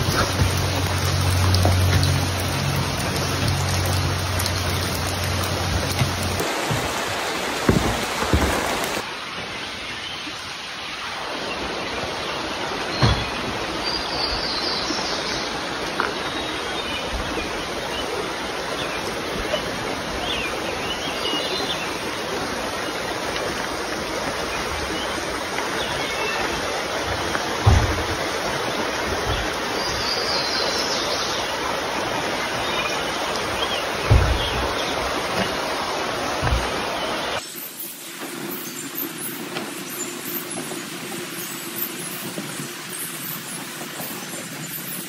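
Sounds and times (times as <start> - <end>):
creek water rushing: 0.0 - 45.0
low thumps: 27.0 - 29.6, 33.9 - 37.4.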